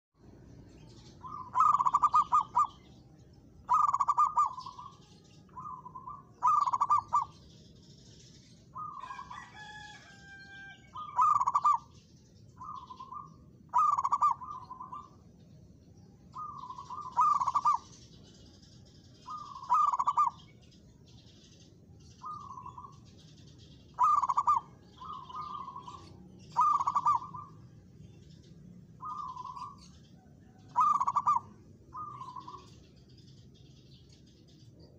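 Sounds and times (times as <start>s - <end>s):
dove cooing: 1.2s - 3.0s, 3.6s - 7.4s, 8.7s - 12.0s, 12.6s - 15.2s, 16.3s - 18.0s, 19.2s - 20.5s, 22.2s - 23.0s, 23.9s - 28.2s, 28.9s - 32.8s.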